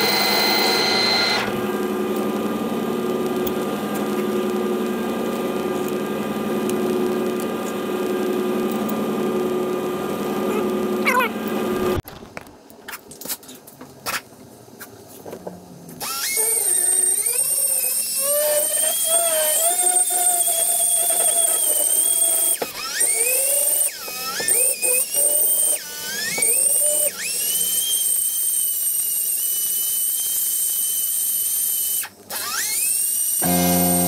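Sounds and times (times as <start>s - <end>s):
die grinder grinding metal: 0.0s - 1.6s, 16.0s - 30.4s, 32.4s - 34.0s.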